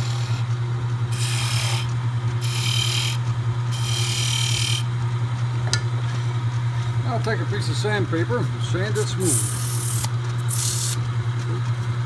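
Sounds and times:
chisel scraping spinning wood: 0.0 - 4.9, 9.0 - 10.9
wood lathe humming: 0.0 - 4.9, 8.7 - 10.1.

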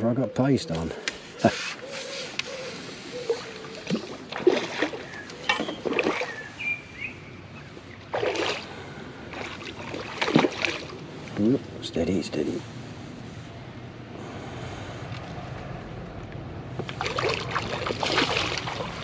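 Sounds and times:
fish splashing at water surface: 3.1 - 6.5, 8.0 - 11.0, 16.8 - 19.0.

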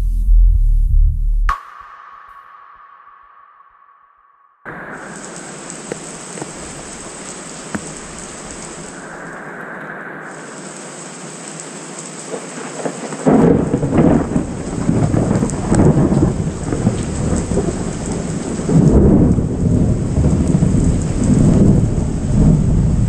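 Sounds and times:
thunder rumbling: 4.6 - 23.0
steady rain: 4.7 - 23.0.

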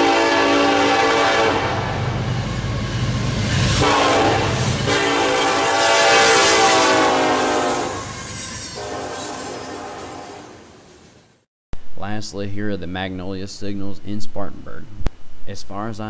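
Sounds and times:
locomotive horn blasts: 0.0 - 2.1, 3.8 - 10.8
locomotive engine and rail rumble: 0.0 - 11.5.

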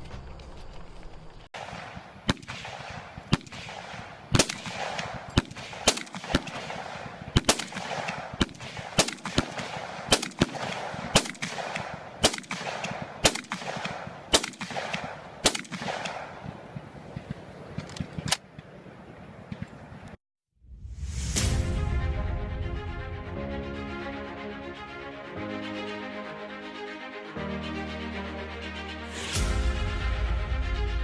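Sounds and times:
rifle shots: 1.6 - 17.4.

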